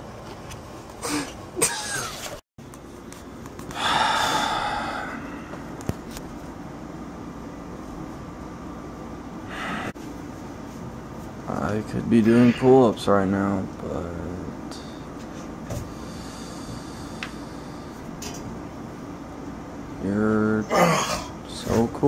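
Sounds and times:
room hum: 0.0 - 22.0
person exhaling with exertion: 3.7 - 5.6, 9.5 - 10.0.

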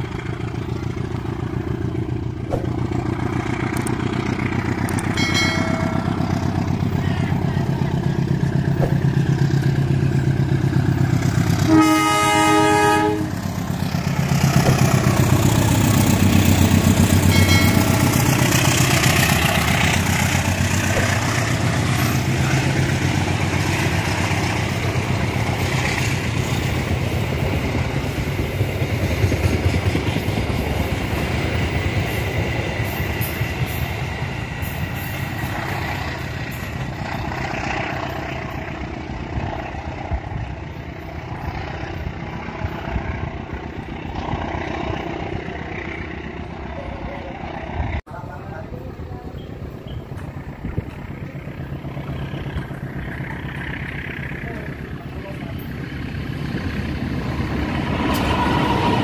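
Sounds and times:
diesel locomotive engine humming: 0.0 - 59.0
train horn blast: 11.6 - 13.5, 58.0 - 59.0
train wheels clattering on rails: 13.4 - 46.6.

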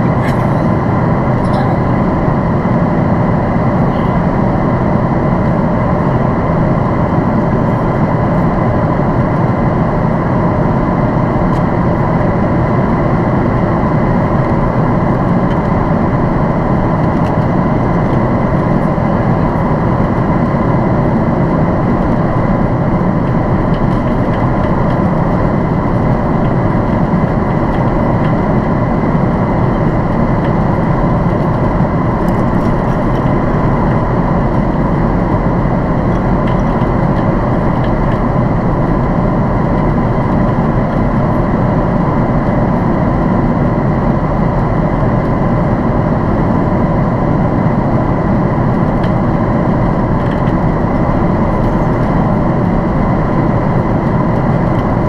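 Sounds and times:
airliner cabin engine rumble: 0.0 - 55.0.

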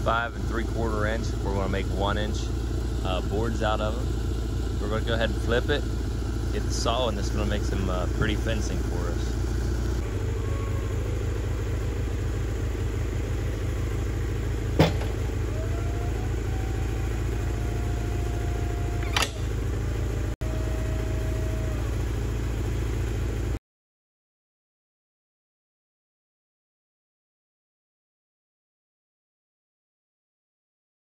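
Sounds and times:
high whine: 0.0 - 23.6
sawmill engine running: 0.0 - 23.6
sharp metal clank: 14.8 - 15.2.

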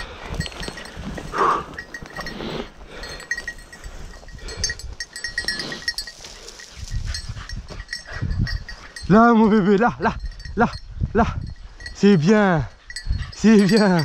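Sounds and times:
light clinking: 0.0 - 14.0
footsteps through dry grass: 0.2 - 9.0.

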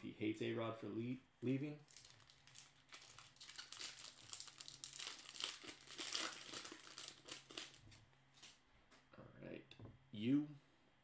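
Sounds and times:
foil wrapper tearing and crumpling: 1.9 - 7.8.

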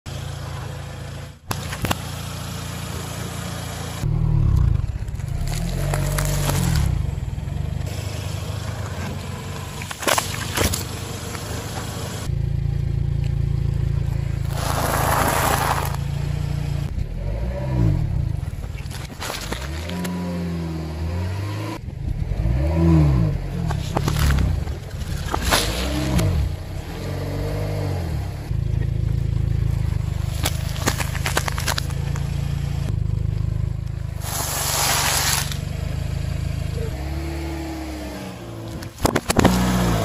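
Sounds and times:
car engine running: 0.1 - 21.2, 21.8 - 40.0
tyre crushing objects: 30.2 - 32.2, 38.8 - 40.0
sharp cracks and pops: 30.2 - 32.3, 38.8 - 39.8.

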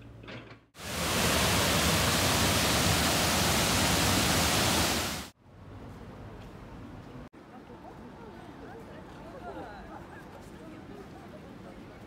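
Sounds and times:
flowing water rushing: 0.8 - 5.3.

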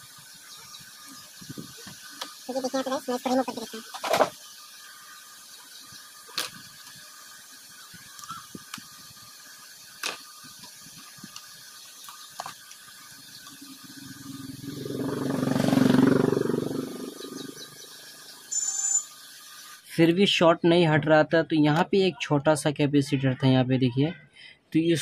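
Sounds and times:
passing vehicle engine: 13.8 - 18.2.

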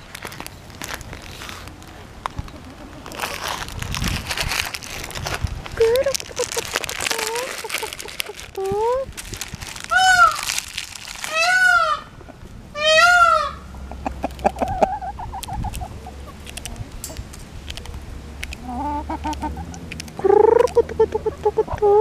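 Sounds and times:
chickens clucking: 2.2 - 3.7, 5.9 - 8.7, 11.3 - 22.0
chickens squawking: 2.3 - 3.8, 5.8 - 9.0, 9.8 - 17.0, 18.5 - 22.0.

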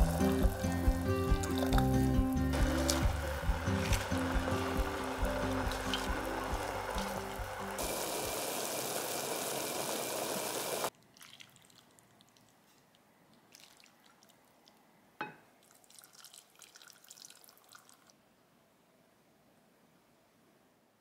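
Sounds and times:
soup splashing and dripping: 0.0 - 9.7, 10.9 - 14.8, 15.6 - 18.2
soup boiling in pot: 0.0 - 12.6.

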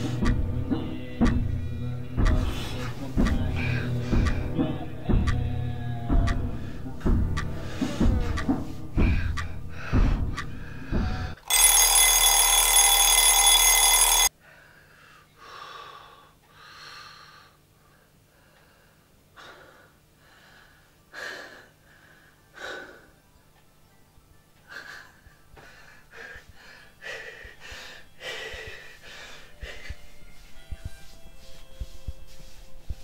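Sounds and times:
shrill ringing: 11.4 - 14.3
man breathing heavily and gasping: 24.7 - 30.1.

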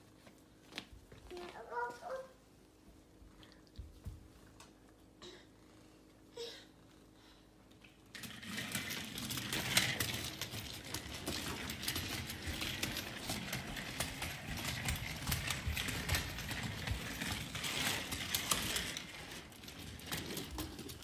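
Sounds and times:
toy stroller wheels rattling on tile: 8.1 - 21.0.

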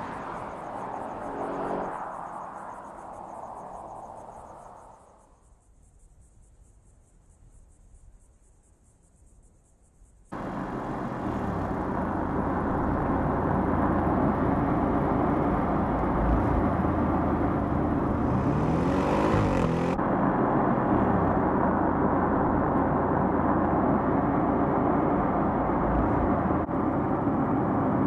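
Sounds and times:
car driving at speed: 0.0 - 5.2, 10.3 - 28.0
car engine passing into distance: 0.0 - 5.2, 10.3 - 28.0
tyre roar: 17.9 - 20.0.

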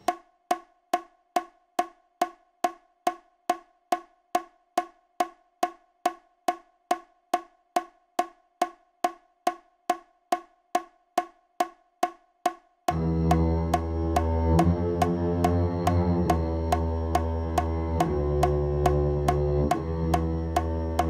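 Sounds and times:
metronome clicking: 12.9 - 21.0.

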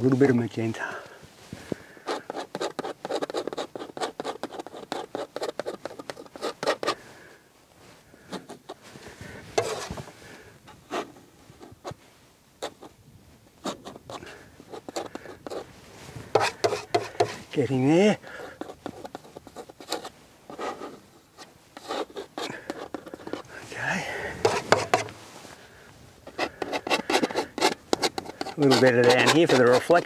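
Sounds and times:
palette knife scraping paint: 2.0 - 7.0, 9.6 - 10.1, 13.6 - 17.4, 18.2 - 23.6, 24.2 - 25.2, 26.2 - 30.0.

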